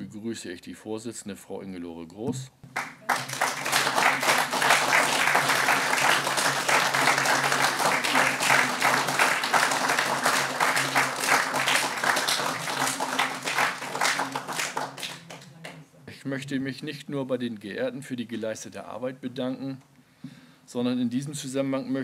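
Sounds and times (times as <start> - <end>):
audience applauding: 2.8 - 15.5.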